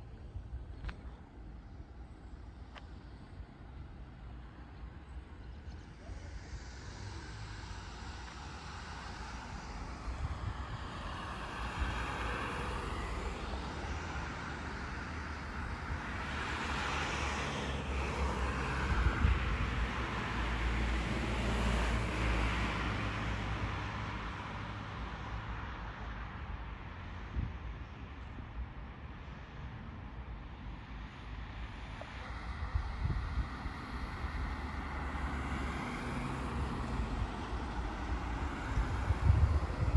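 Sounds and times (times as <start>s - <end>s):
cars passing on street: 0.0s - 39.9s.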